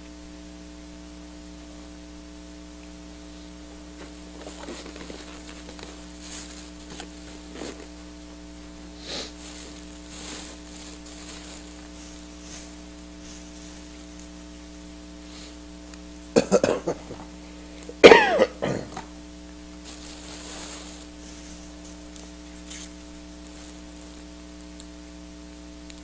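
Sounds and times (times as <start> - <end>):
electrical hum: 0.0 - 26.0.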